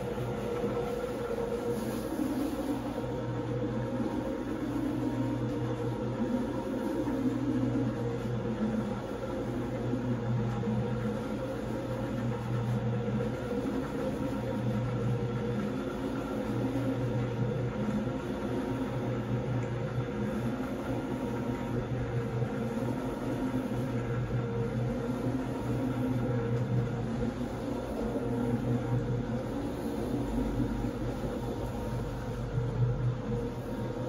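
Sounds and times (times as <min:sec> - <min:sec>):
floor machine motor hum: 0:00.0 - 0:34.0
rotating brush scrubbing rug: 0:20.1 - 0:34.0.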